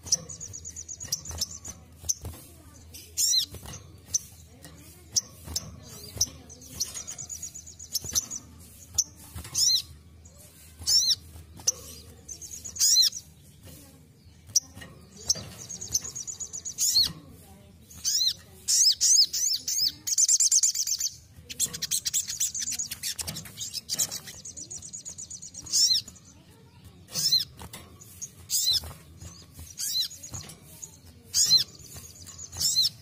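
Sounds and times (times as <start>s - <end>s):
bird chirping and trilling: 0.0s - 33.0s.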